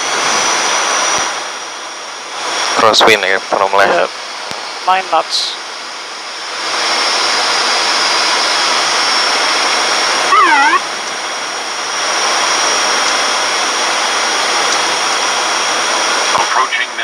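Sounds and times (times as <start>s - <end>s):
high whine: 0.0s - 17.0s
turboprop cockpit noise: 0.0s - 17.0s
brief pitch-dipping tone: 10.3s - 10.8s.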